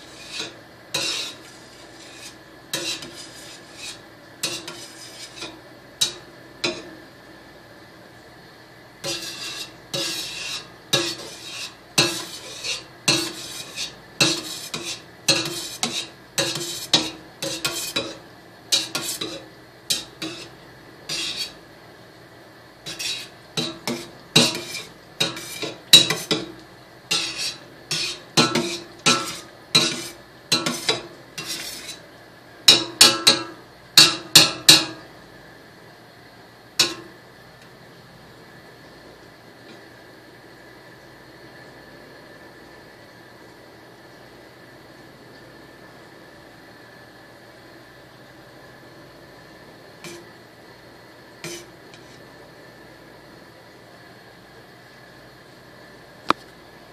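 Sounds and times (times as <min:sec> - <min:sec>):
metal utensil scraping a steel pot: 0:00.0 - 0:06.9, 0:09.0 - 0:20.5, 0:21.1 - 0:21.6, 0:22.9 - 0:26.5, 0:27.1 - 0:32.0, 0:51.4 - 0:52.2.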